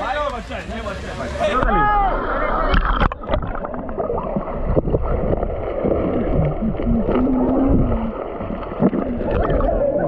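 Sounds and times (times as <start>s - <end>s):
underwater rumbling and bubbling: 1.6s - 10.0s
underwater knocks: 2.7s - 9.7s
muffled wavering voice-like tone: 6.4s - 8.2s.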